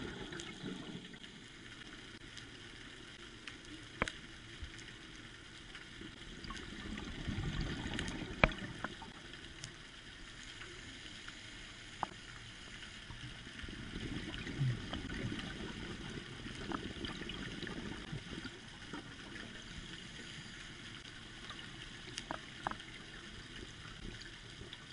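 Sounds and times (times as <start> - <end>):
diver's bubbles gurgling underwater: 0.0 - 1.4, 6.3 - 9.2, 13.6 - 19.6.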